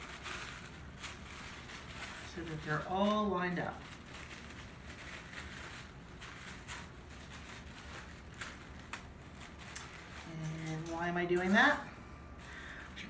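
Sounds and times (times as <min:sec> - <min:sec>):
tissue paper rustling: 0:00.0 - 0:13.0.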